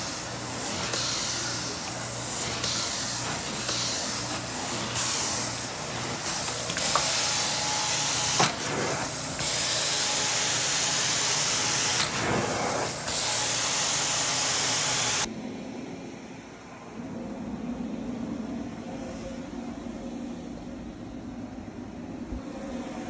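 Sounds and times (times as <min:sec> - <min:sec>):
carpet cleaner suction hiss: 0:00.0 - 0:15.3.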